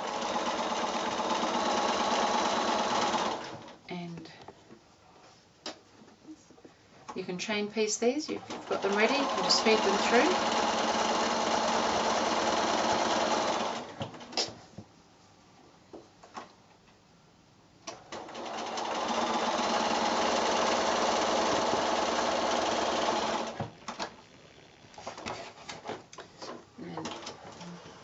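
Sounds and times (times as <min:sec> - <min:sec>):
electric sewing machine stitching: 0:00.0 - 0:03.8, 0:08.4 - 0:14.0, 0:17.9 - 0:25.3.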